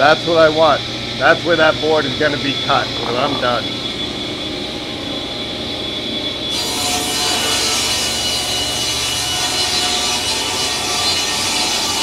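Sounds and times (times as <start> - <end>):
saw machine whine: 0.0 - 12.0
saw blade cutting wood: 6.5 - 12.0.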